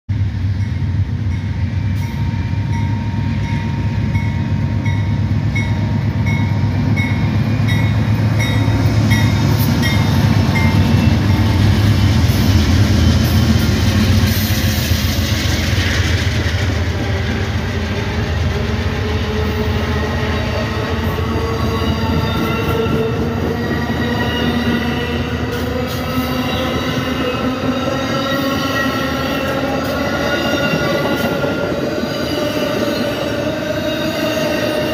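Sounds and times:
diesel locomotive rumbling: 0.1 - 34.9
crossing bell ringing: 0.6 - 11.7
train wheels squealing: 1.8 - 34.9.

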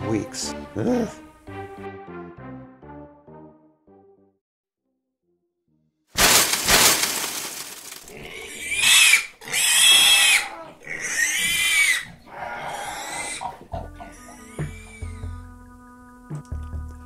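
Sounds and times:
music: 0.0 - 6.2, 13.4 - 17.0
pig squealing: 8.1 - 15.3.

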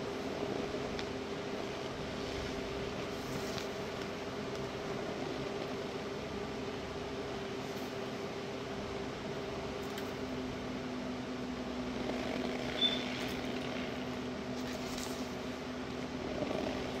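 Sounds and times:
low appliance hum: 0.0 - 17.0
brief high squeak: 12.8 - 13.2.

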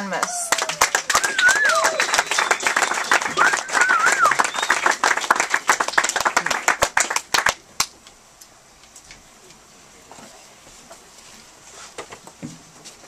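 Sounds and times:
audience clapping: 0.0 - 8.0
faint room noise: 0.0 - 13.0.

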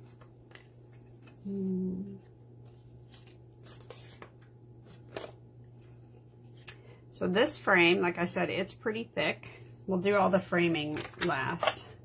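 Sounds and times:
steady low background hum: 0.0 - 12.0
woman humming mm: 1.4 - 2.2
cardstock rustling and tapping: 10.0 - 11.8.

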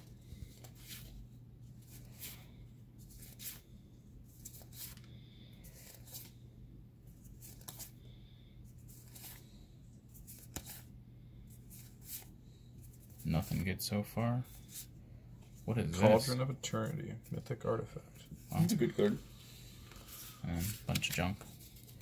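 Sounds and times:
cards flicking and rustling: 0.4 - 1.2, 1.8 - 6.4, 7.1 - 8.0, 8.9 - 9.5, 10.1 - 10.9, 19.9 - 22.0.

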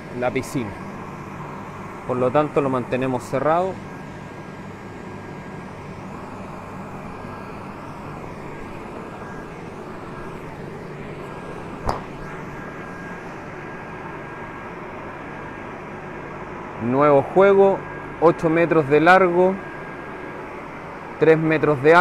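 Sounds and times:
electric air blower running: 0.0 - 22.0
sharp knock: 11.8 - 12.2.

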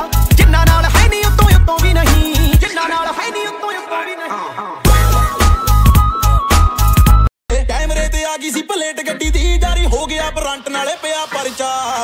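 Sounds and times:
music with heavy bass beat: 0.0 - 2.7, 4.9 - 8.2, 9.2 - 12.0
song with melody line: 0.0 - 12.0.

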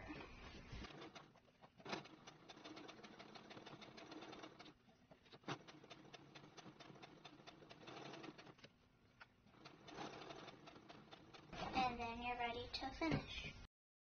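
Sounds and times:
sewing machine stitching: 0.0 - 12.0.

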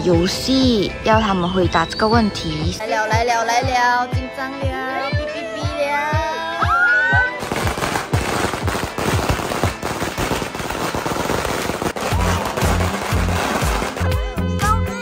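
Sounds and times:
background music with bass beat: 0.0 - 15.0
firecrackers crackling: 7.4 - 14.8.

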